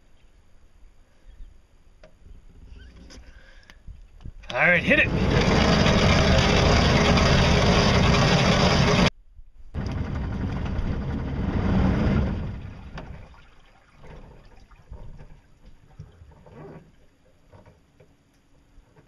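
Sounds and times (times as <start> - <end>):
boat motor running: 4.5 - 9.1, 9.8 - 13.2
water rushing along hull: 4.5 - 9.1, 9.8 - 17.7
wind buffeting microphone: 9.7 - 13.2.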